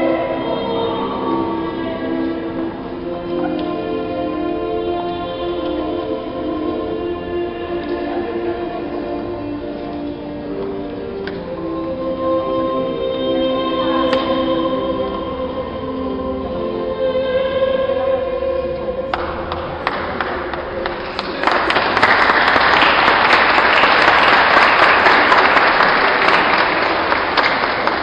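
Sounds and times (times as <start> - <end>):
crowd applauding: 19.8 - 28.0.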